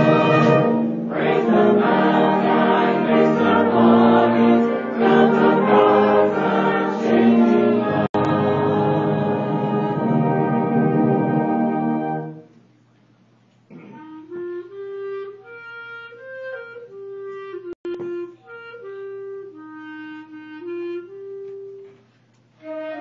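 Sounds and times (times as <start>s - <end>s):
school band playing: 0.0s - 12.5s, 22.6s - 23.0s
wind instrument solo melody: 14.1s - 21.9s, 22.6s - 23.0s.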